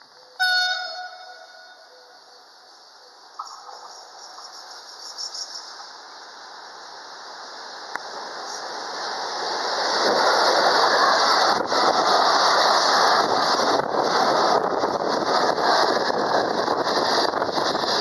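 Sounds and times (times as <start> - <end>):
freight train passing: 0.0 - 18.0
train wheels on rails: 0.0 - 18.0.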